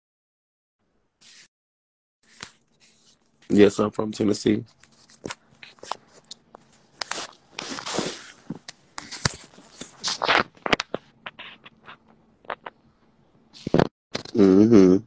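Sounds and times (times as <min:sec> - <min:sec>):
phone handling rustling and scraping: 0:04.7 - 0:12.8.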